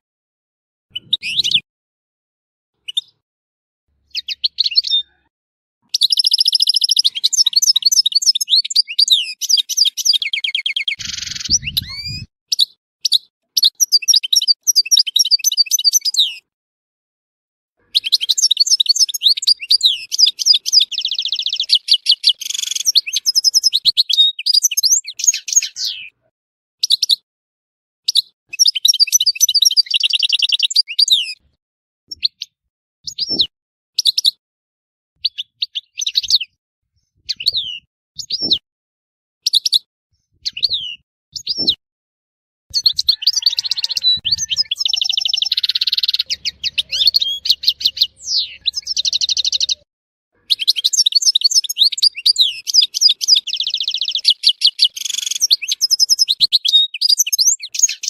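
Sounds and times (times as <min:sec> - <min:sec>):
goldfinch twittering and trills: 0:06.0 - 0:12.3, 0:17.9 - 0:26.1, 0:42.7 - 0:49.8, 0:50.5 - 0:58.0
short harsh bird buzz: 0:11.0 - 0:12.3.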